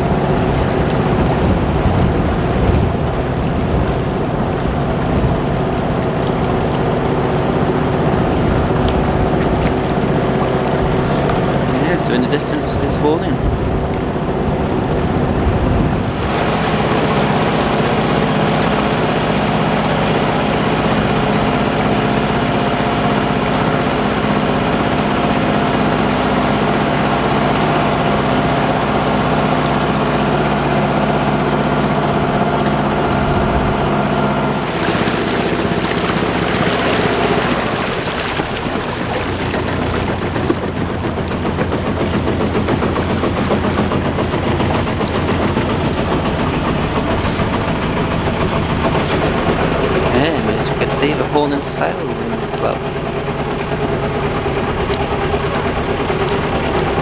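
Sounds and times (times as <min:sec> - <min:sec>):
wind noise: 0:00.0 - 0:05.6, 0:13.4 - 0:16.8
boat engine running: 0:00.0 - 0:57.0
water noise: 0:00.0 - 0:57.0.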